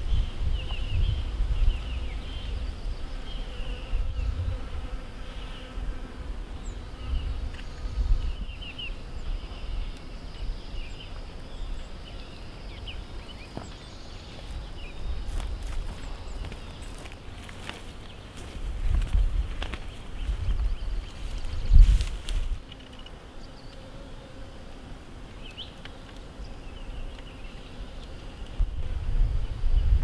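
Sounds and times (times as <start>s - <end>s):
wind on microphone: 0.0s - 12.2s, 18.4s - 22.7s, 28.2s - 30.0s
small birds chirping: 0.0s - 24.4s, 25.3s - 28.7s
insect buzzing: 0.0s - 30.0s.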